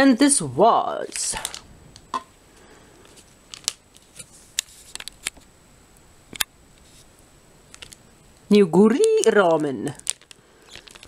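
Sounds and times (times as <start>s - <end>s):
small sharp clicks and crinkles: 3.0s - 5.5s, 6.3s - 11.0s.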